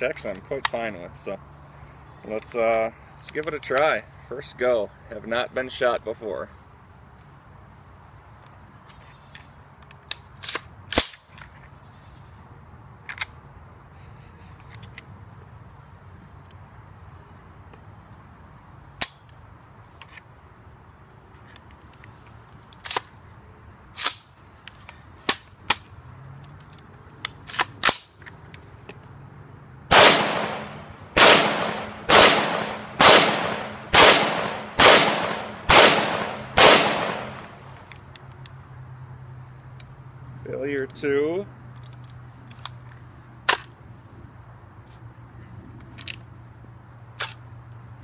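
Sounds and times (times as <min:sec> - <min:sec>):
rifle shots: 0:29.9 - 0:37.7.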